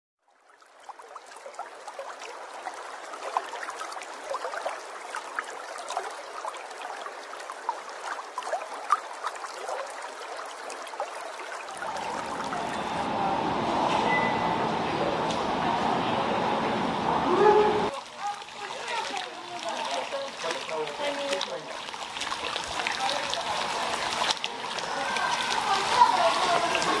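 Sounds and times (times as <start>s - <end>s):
water trickling and bubbling: 0.2s - 27.0s
large indoor hall hum: 11.8s - 17.9s.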